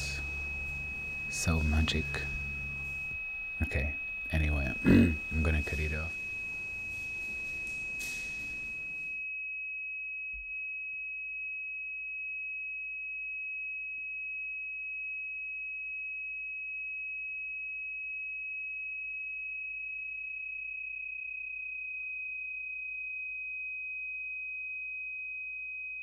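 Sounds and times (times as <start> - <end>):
high-pitched pure tone: 0.0 - 9.1.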